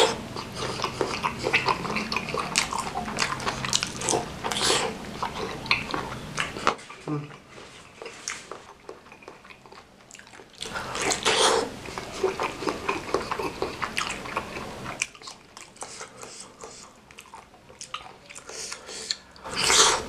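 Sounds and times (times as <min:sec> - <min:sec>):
sticky mouth clicks: 0:00.0 - 0:07.5
wet chewing: 0:00.0 - 0:20.0.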